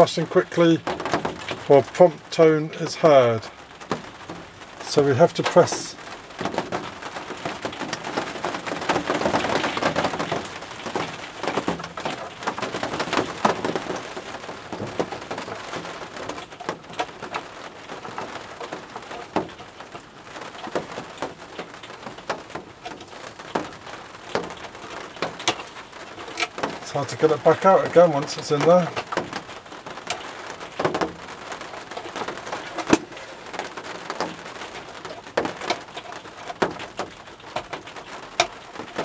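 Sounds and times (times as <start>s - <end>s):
rain on plastic roof: 0.0s - 39.0s
plastic clicks and knocks: 32.0s - 39.0s.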